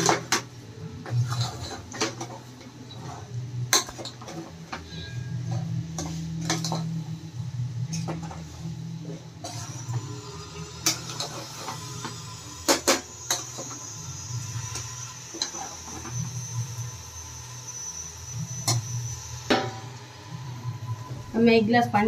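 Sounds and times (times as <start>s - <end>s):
metal spoon scraping pot: 1.0s - 6.9s.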